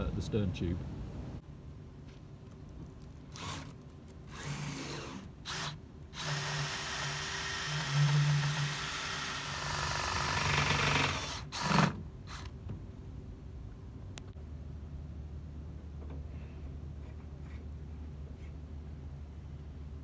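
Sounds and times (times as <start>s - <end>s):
cordless drill spinning sander: 3.3s - 3.7s, 4.3s - 12.5s.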